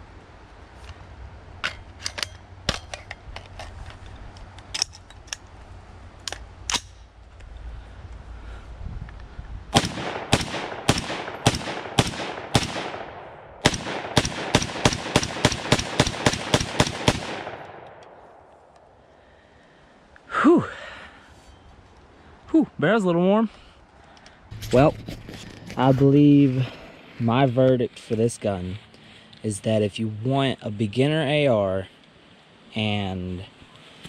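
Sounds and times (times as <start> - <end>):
rifle shots: 9.7 - 18.5.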